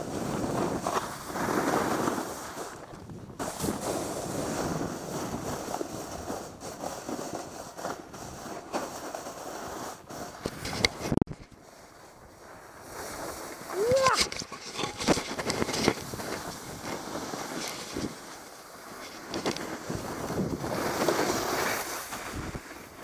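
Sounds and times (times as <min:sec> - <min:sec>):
snowboard scraping over snow: 0:00.0 - 0:23.0
wind buffeting microphone: 0:19.4 - 0:21.1.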